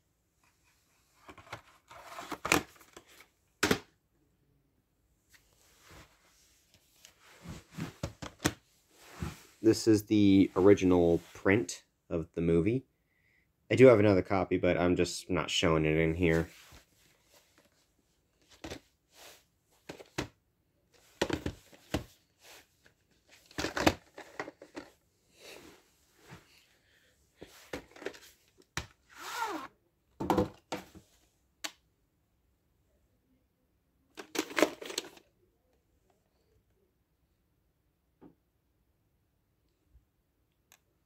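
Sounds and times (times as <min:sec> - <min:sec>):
tape cases clicking and rustling: 0:01.2 - 0:03.8, 0:22.9 - 0:25.0, 0:34.2 - 0:35.2.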